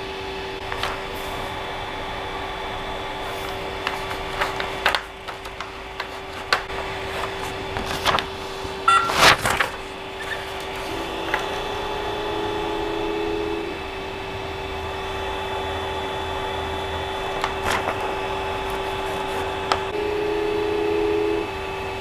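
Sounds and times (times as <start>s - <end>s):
printer humming: 0.0s - 22.0s
paper rustling and tapping: 0.6s - 1.1s, 3.2s - 11.6s, 17.2s - 19.9s
steady motor tone: 10.9s - 17.3s, 19.9s - 22.0s.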